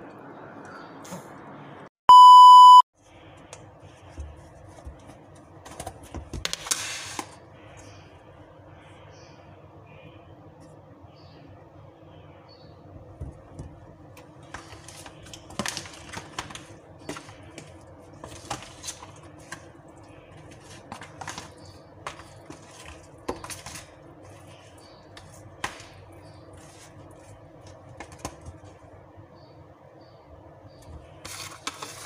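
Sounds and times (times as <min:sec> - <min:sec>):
faint steady hum: 0:07.4 - 0:22.2.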